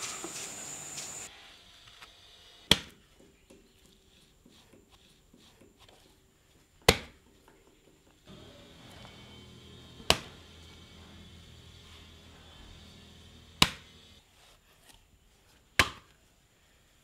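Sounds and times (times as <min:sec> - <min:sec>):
tool whacking wet clay: 0:02.7 - 0:03.3, 0:06.8 - 0:07.2, 0:10.0 - 0:10.4, 0:13.5 - 0:14.0, 0:15.8 - 0:16.2.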